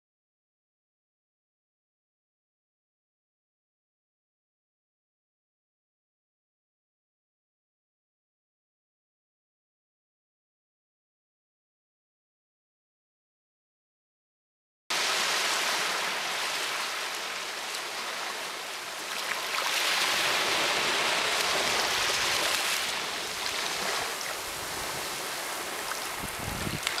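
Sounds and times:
surf washing onto shore: 0:14.9 - 0:27.0.

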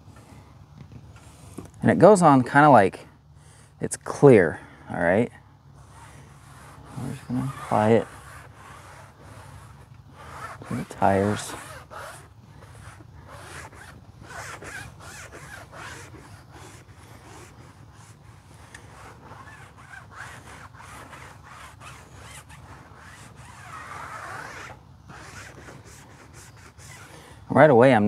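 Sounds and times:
foam pad rubbing on tire: 0:05.1 - 0:27.4.

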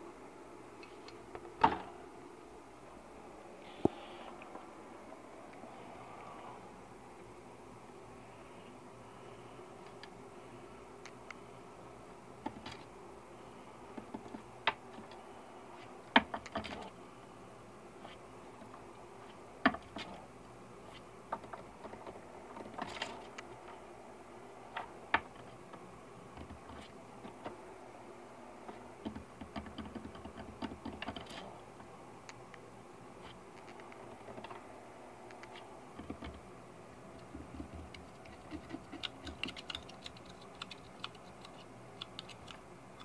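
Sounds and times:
squirrel clicking and tapping on wood: 0:28.7 - 0:31.4, 0:37.2 - 0:43.0.

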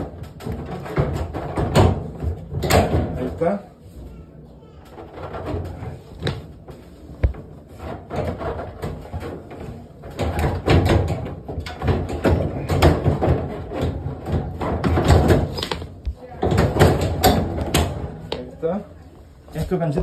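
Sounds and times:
plastic and sheet metal knocking: 0:07.2 - 0:18.5.

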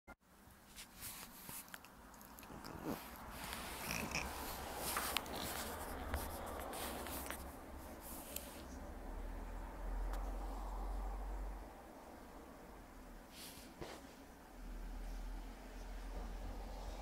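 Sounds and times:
wet chewing: 0:01.2 - 0:07.4.

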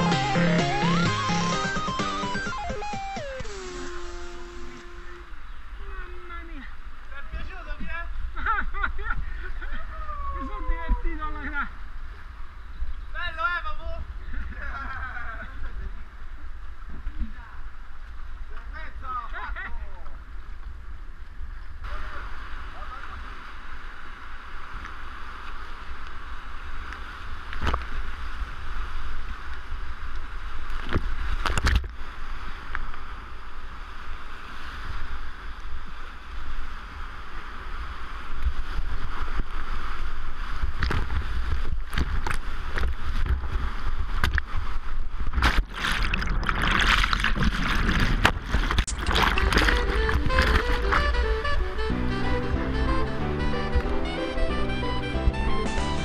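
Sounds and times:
paddle strokes knocking and splashing: 0:40.6 - 0:51.4
whitewater rapids rushing: 0:45.8 - 0:56.0.

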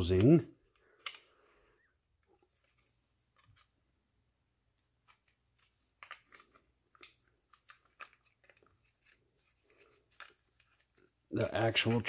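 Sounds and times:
faint clicks of metal parts and tools: 0:00.2 - 0:01.4.

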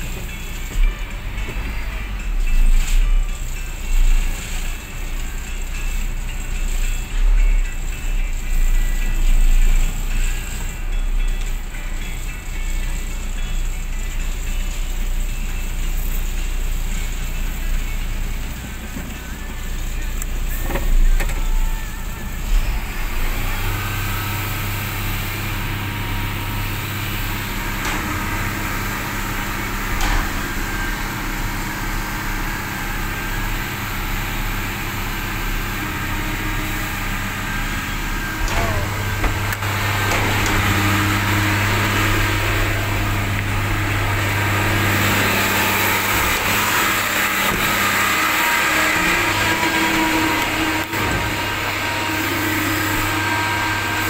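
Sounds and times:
truck diesel engine running: 0:00.0 - 0:54.0.

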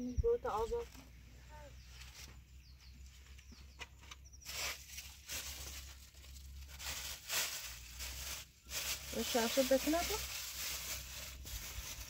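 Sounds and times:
plastic bag crinkling: 0:04.4 - 0:12.0.

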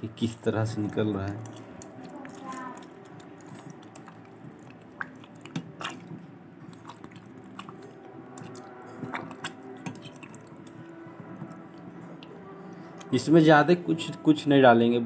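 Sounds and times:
hand squelching fruit pulp in water: 0:00.2 - 0:12.2.

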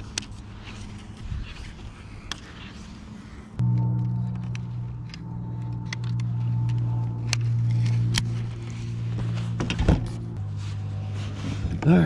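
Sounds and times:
electric trolling motor humming: 0:02.9 - 0:11.0.

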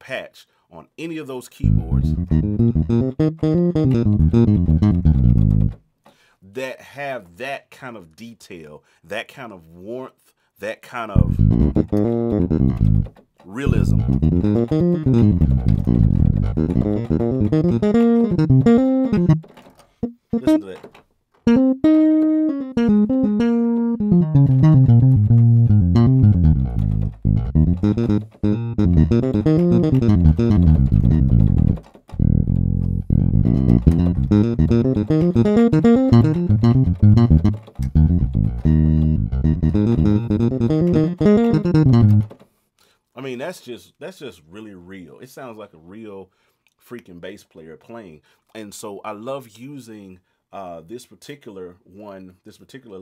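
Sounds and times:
electric bass line: 0:01.6 - 0:05.8, 0:11.2 - 0:13.1, 0:13.7 - 0:20.6, 0:21.5 - 0:42.3.

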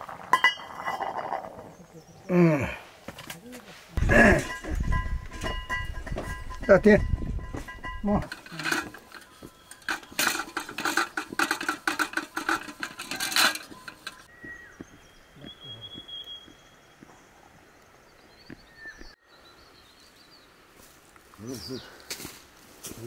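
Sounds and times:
pots and dishes clinking: 0:00.3 - 0:01.4, 0:04.0 - 0:14.3
faint high chirps: 0:13.6 - 0:17.9.

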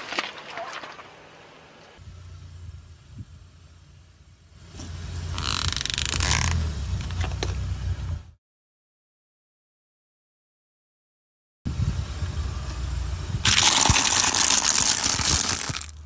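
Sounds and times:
car engine low rumble: 0:00.0 - 0:08.4, 0:11.7 - 0:16.0
small cracks: 0:13.5 - 0:16.0.

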